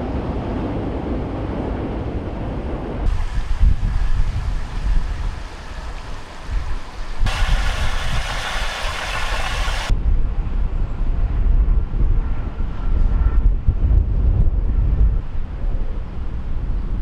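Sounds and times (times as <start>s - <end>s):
wind buffeting microphone: 0.0s - 17.0s
steady hissing rush: 3.1s - 9.9s.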